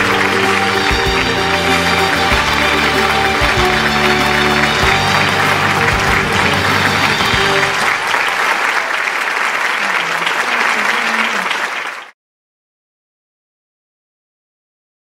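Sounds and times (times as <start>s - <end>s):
music: 0.0s - 8.3s
audience applauding: 0.0s - 12.2s.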